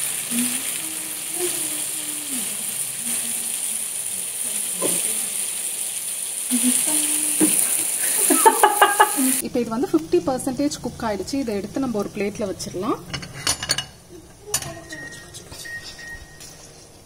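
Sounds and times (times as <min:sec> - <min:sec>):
meatballs sizzling in oil: 0:00.0 - 0:13.0
person humming low notes: 0:00.1 - 0:05.4, 0:06.5 - 0:07.9.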